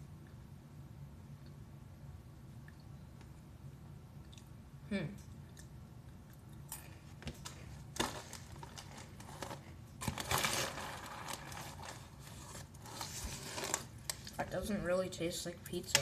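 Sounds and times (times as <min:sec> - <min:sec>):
crackers crunching: 0:05.5 - 0:14.4
plastic bag crinkling: 0:07.9 - 0:14.4.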